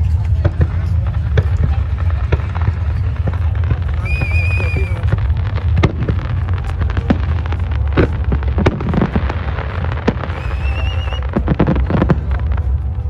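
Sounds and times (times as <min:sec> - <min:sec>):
fireworks bangs and crackles: 0:00.0 - 0:13.0
low rumble: 0:00.0 - 0:13.0
wavering firework whistle: 0:03.8 - 0:05.2, 0:10.1 - 0:11.4.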